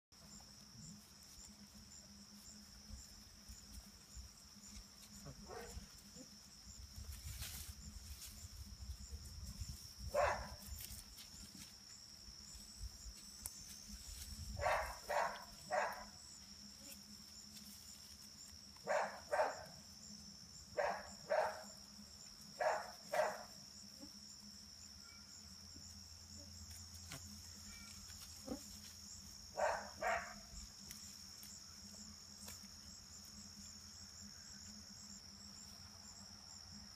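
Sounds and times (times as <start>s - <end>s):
insects trilling: 0.2s - 36.9s
dog barking: 5.3s - 5.8s, 10.1s - 10.6s, 14.6s - 16.1s, 18.9s - 19.8s, 20.8s - 21.7s, 22.6s - 23.5s, 29.6s - 30.4s.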